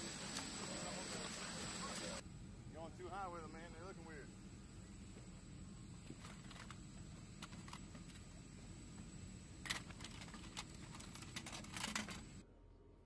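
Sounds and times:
steady low hum: 0:00.0 - 0:13.0
rifles clicking and clattering: 0:09.6 - 0:12.4.

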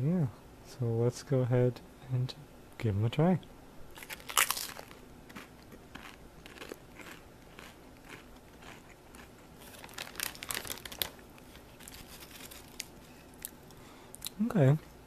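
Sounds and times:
foil chip bag crinkling: 0:04.0 - 0:13.1.

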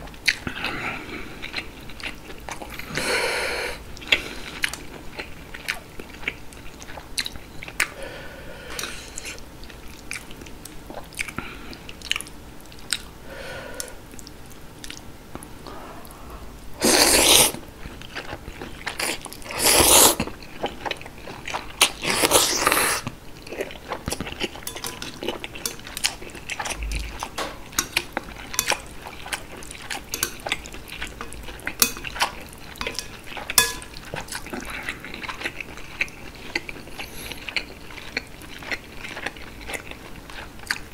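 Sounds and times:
chewing with wet mouth clicks: 0:00.1 - 0:00.7, 0:04.0 - 0:08.0, 0:08.8 - 0:13.1, 0:13.8 - 0:15.8, 0:23.4 - 0:40.9
slurping noodles: 0:16.8 - 0:17.6, 0:19.0 - 0:20.3, 0:22.0 - 0:23.1.

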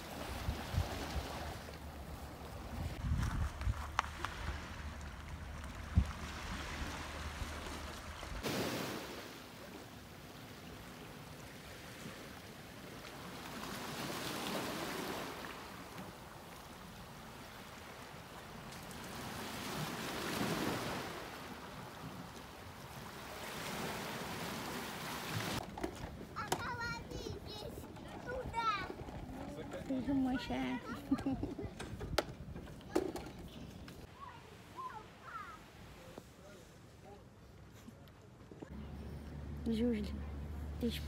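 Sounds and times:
wind rumbling on microphone: 0:00.2 - 0:08.4, 0:30.5 - 0:34.0.

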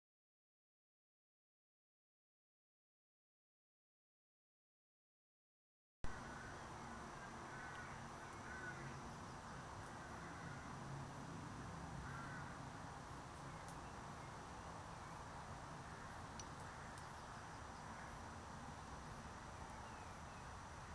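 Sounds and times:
faint background noise: 0:06.1 - 0:20.9.

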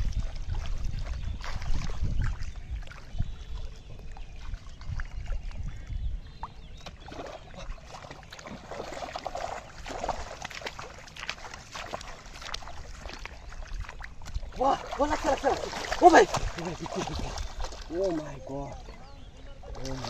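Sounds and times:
fish splashing in shallow water: 0:00.0 - 0:20.0
person wading through water: 0:00.0 - 0:20.0
wind rumble on microphone: 0:00.0 - 0:20.0.

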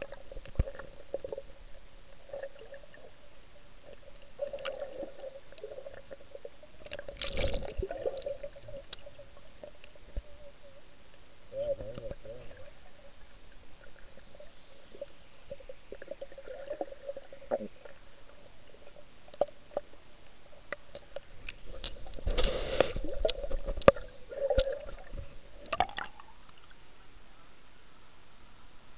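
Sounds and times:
faint steady hum: 0:00.0 - 0:28.9
rushing bubbling water: 0:03.9 - 0:09.8, 0:11.6 - 0:19.0, 0:21.2 - 0:26.3
underwater clicks: 0:20.7 - 0:25.0, 0:25.6 - 0:26.6.

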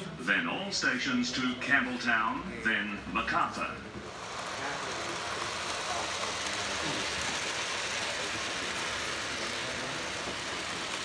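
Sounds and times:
model train whirring: 0:03.8 - 0:11.0.

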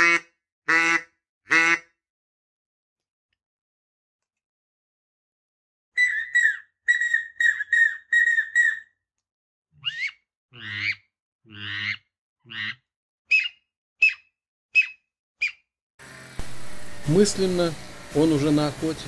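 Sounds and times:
duck calls: 0:00.0 - 0:01.9, 0:09.8 - 0:14.2.

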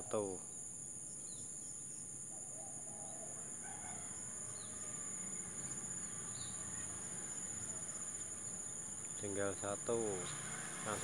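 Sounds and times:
birds chirping: 0:00.0 - 0:11.0
insects buzzing: 0:00.0 - 0:11.0.

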